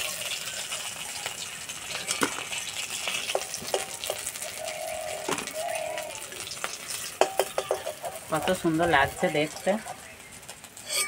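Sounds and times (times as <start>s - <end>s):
oil sizzling in a pan: 0.0s - 11.0s
metal spatula scraping pan: 6.9s - 9.7s, 10.8s - 11.0s.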